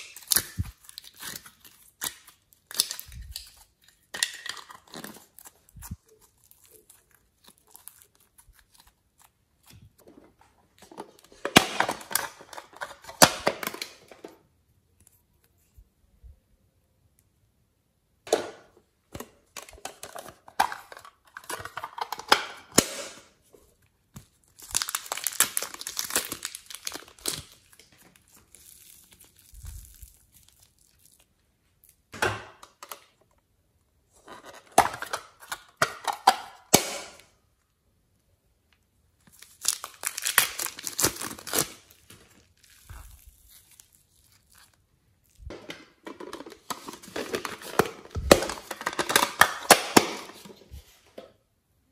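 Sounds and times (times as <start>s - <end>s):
crinkly plastic rustling: 0.0s - 14.4s, 23.4s - 33.2s, 39.2s - 51.2s.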